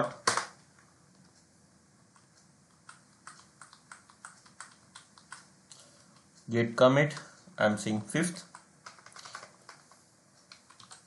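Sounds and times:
computer keyboard typing: 2.1 - 5.9, 8.2 - 11.0.

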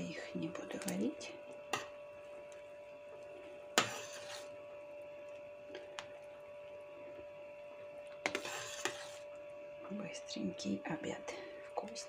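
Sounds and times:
faint steady hum: 0.0 - 12.0
stirring soup: 0.8 - 9.6.

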